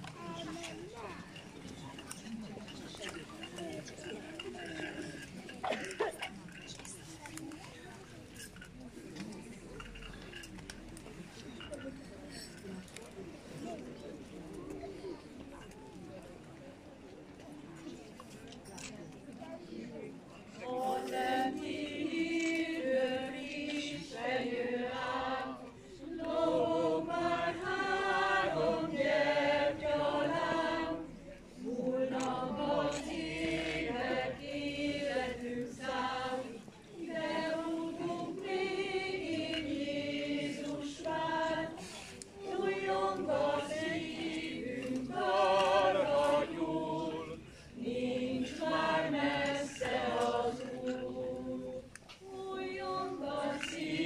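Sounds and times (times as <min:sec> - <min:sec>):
group singing a hymn: 0:20.6 - 0:54.0.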